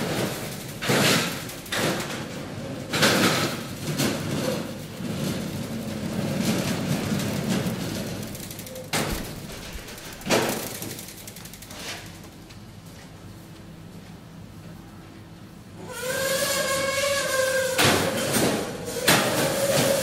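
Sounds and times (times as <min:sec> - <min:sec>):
cages rattling: 0:00.0 - 0:12.2
trolley wheels rumbling: 0:00.0 - 0:12.3.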